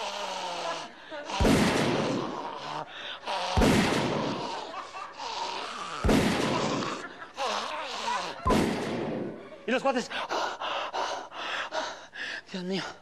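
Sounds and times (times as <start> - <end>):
man imitating gunshots: 1.3 - 2.7, 3.3 - 4.7, 6.0 - 7.1, 8.4 - 9.2.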